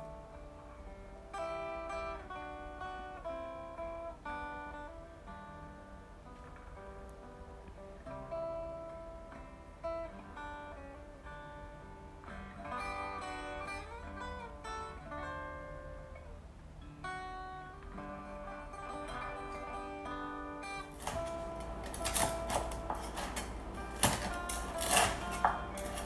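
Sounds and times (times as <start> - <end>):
acoustic guitar music: 0.0 - 26.0
knife chopping crispy pork skin: 20.9 - 26.0.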